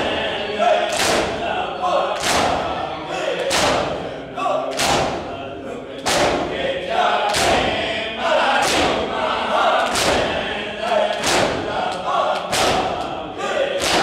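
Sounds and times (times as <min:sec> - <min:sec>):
men chanting in unison: 0:00.0 - 0:14.0
chest beating slaps: 0:00.9 - 0:01.4, 0:02.2 - 0:02.7, 0:03.4 - 0:04.0, 0:04.7 - 0:05.4, 0:06.0 - 0:06.6, 0:08.6 - 0:09.0, 0:09.8 - 0:10.4, 0:11.1 - 0:13.2, 0:13.8 - 0:14.0.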